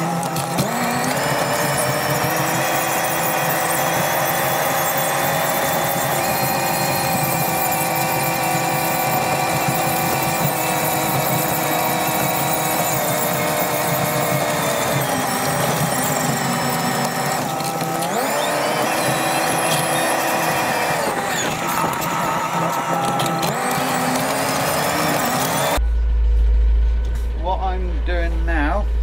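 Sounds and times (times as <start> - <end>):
tractor engine whining drone: 0.0 - 29.0.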